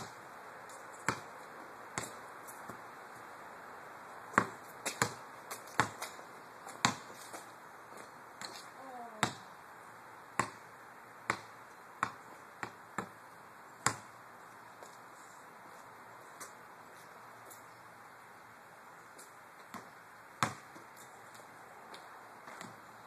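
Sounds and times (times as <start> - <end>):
ball bouncing on pavement: 0.0 - 1.4, 2.0 - 2.8, 4.3 - 9.5, 10.3 - 13.2, 13.8 - 14.2, 19.2 - 22.8.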